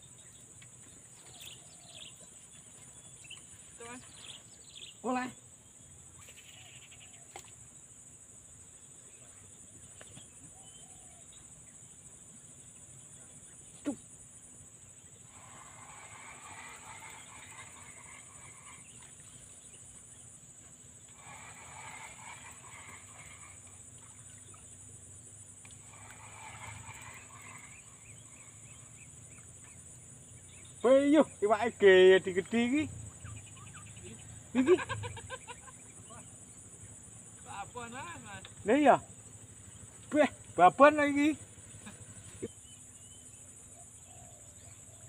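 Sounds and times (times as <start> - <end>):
insects chirring: 0.0 - 45.0.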